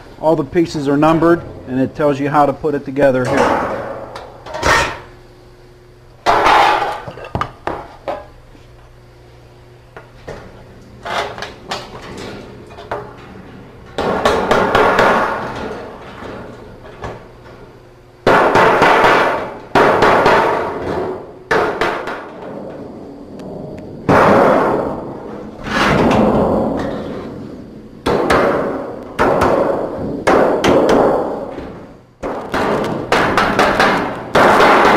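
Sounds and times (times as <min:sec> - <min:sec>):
hammer striking sheet metal: 0:03.3 - 0:05.0, 0:18.3 - 0:22.4, 0:24.1 - 0:27.2, 0:28.0 - 0:31.6, 0:32.2 - 0:34.9.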